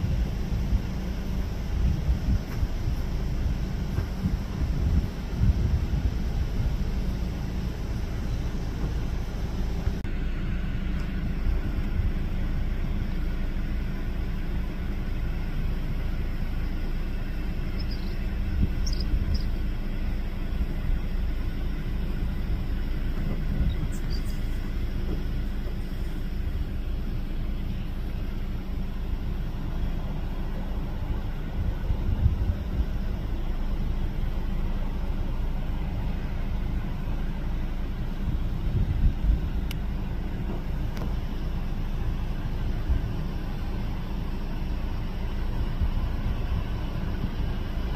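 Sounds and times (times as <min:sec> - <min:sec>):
wind on microphone: 0:00.0 - 0:10.0, 0:17.8 - 0:19.6, 0:23.2 - 0:25.3, 0:31.4 - 0:33.4, 0:38.2 - 0:39.7
jet airliner low rumble: 0:00.0 - 0:47.9.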